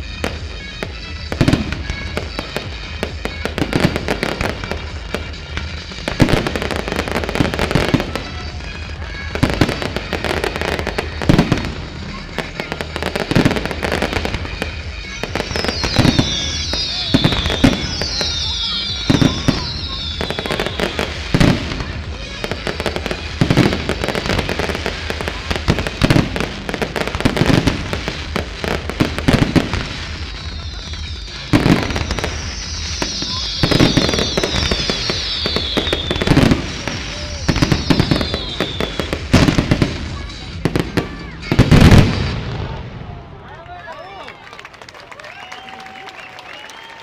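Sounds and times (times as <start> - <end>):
high falling firework whistles: 0.0 - 42.8, 45.2 - 47.0
fireworks bursting bangs: 0.0 - 44.2.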